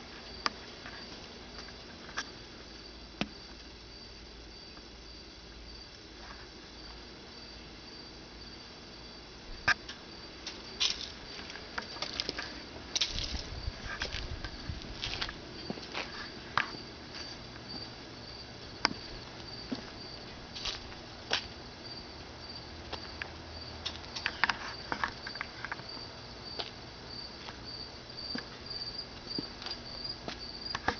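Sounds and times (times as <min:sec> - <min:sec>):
crickets chirping: 0:00.0 - 0:30.9.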